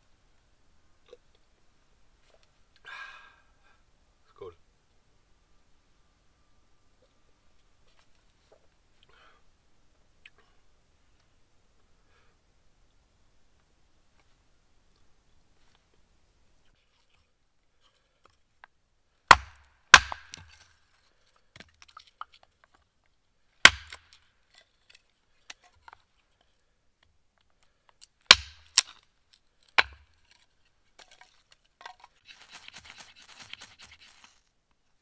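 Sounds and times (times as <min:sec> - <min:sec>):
faint scratchy rustling: 0:07.0 - 0:09.0, 0:29.3 - 0:35.0
hatchet chopping wood: 0:19.3 - 0:20.6, 0:23.6 - 0:24.2, 0:28.3 - 0:28.9, 0:29.8 - 0:30.1.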